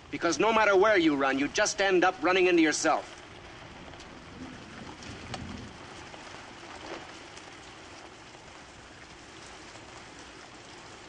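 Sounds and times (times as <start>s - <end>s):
heavy rain on street and car: 1.4s - 11.0s
faint taps of raindrops: 2.8s - 11.0s.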